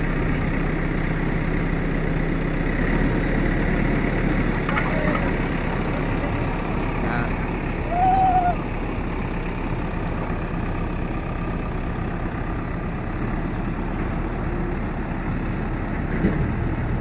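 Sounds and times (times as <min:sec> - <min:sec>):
diesel engine under load: 0:00.0 - 0:17.0.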